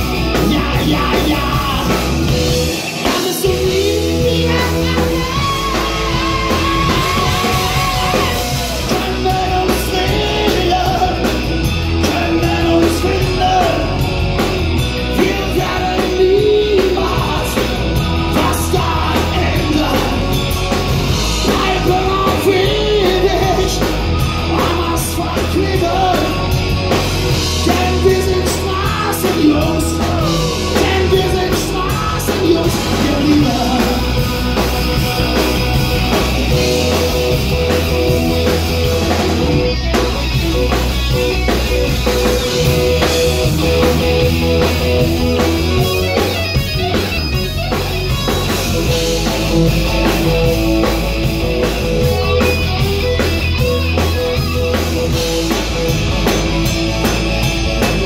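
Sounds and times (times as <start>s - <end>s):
bass guitar: 0.0s - 58.0s
drum kit: 0.0s - 58.0s
electric guitar: 0.0s - 58.0s
keyboard: 0.0s - 58.0s
man singing: 0.1s - 14.4s, 15.0s - 37.7s.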